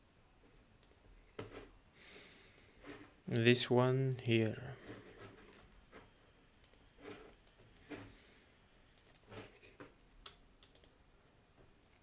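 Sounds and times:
computer mouse and keyboard clicks: 0:04.9 - 0:08.2, 0:09.0 - 0:11.0.

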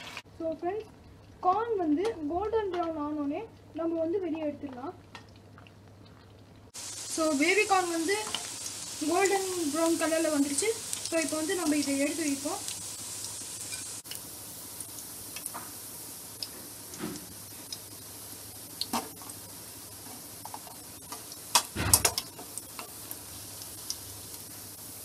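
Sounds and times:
food sizzling in hot oil: 0:00.0 - 0:00.3, 0:06.7 - 0:25.0.

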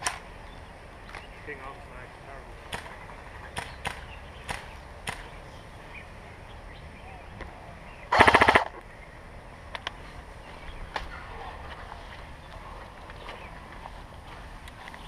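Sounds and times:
sharp clicks: 0:00.0 - 0:00.2, 0:03.6 - 0:05.4, 0:08.1 - 0:08.9
airsoft rifle full-auto burst: 0:08.1 - 0:08.8.

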